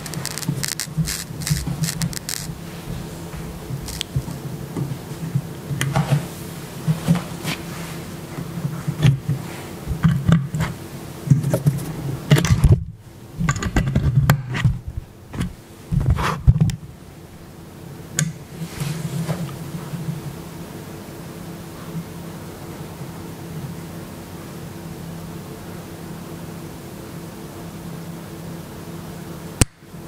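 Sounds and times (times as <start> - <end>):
scratchy volume knob crackling: 0.0 - 2.6, 3.8 - 4.4
amplifier buzzing hum: 0.0 - 18.6.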